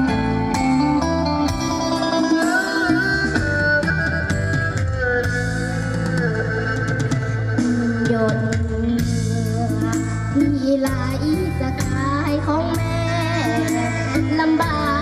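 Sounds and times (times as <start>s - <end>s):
backing music with guitar and drums: 0.0s - 15.0s
girl singing into microphone: 6.2s - 15.0s.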